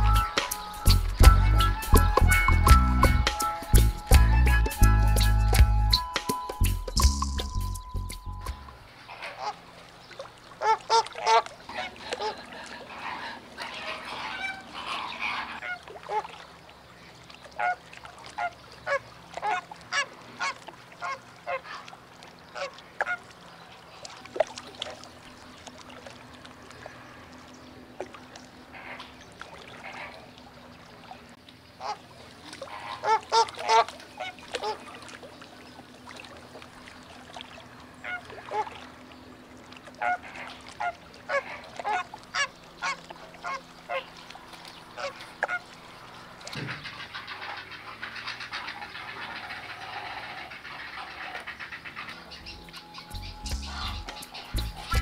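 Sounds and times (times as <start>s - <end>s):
flamingos calling: 0.0s - 6.1s, 6.8s - 9.8s, 10.6s - 16.4s, 17.6s - 24.0s, 28.6s - 30.7s, 31.7s - 35.8s, 37.9s - 38.8s, 39.9s - 55.0s.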